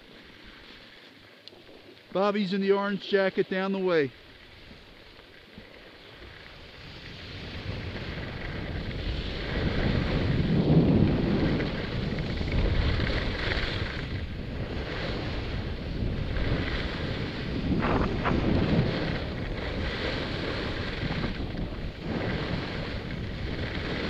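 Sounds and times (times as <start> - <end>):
skis scraping on icy snow: 0.0 - 24.0
wind rushing over microphone: 6.6 - 24.0.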